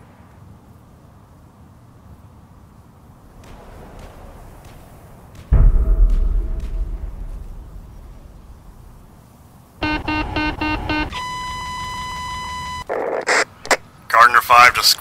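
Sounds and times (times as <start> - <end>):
low rumble: 3.2 - 9.8
electronic beeps: 9.8 - 13.4.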